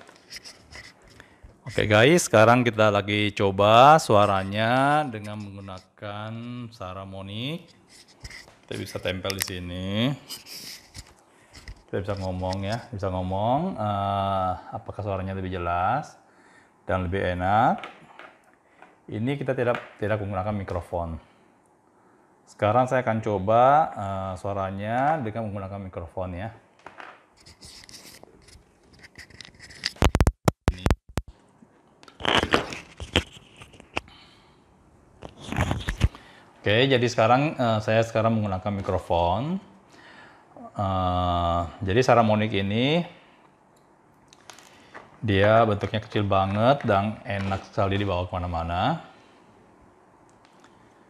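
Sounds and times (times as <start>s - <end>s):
microphone handling rustling: 27.4s - 31.4s, 32.2s - 34.1s, 35.2s - 36.3s.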